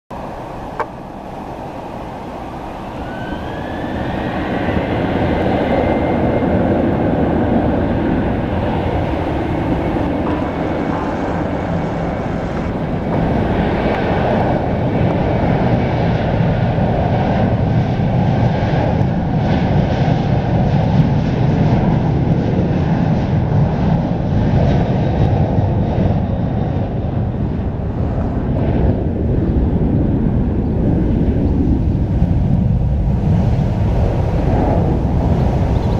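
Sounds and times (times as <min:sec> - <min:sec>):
jet engines spooling up: 0:00.1 - 0:35.9.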